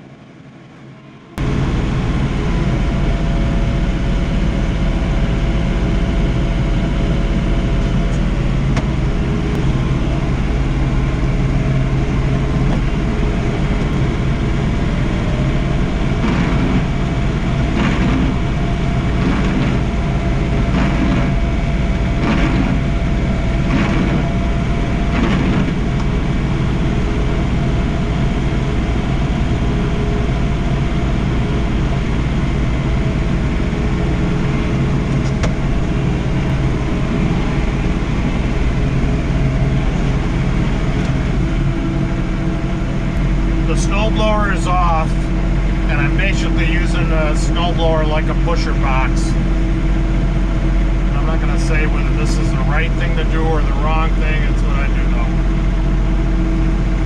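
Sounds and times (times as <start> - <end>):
tractor diesel engine running: 0.0 - 57.0.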